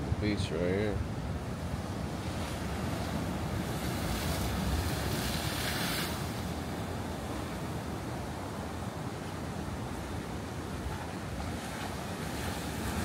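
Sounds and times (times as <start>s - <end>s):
ocean surf washing: 0.0s - 13.0s.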